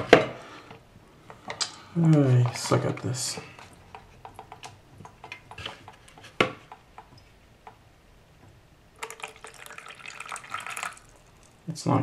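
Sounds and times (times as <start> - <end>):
water pouring and splashing: 9.0 - 11.6.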